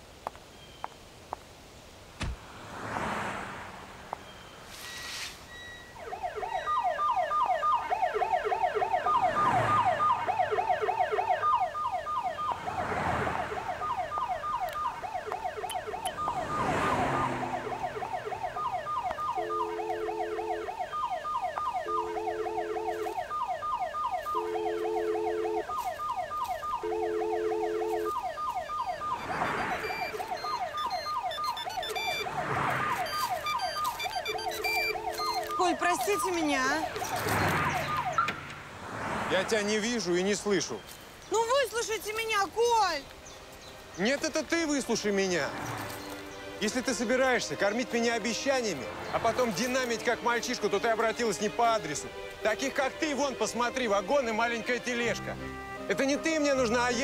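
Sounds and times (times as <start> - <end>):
car alarm electronic tones: 4.2 - 38.4.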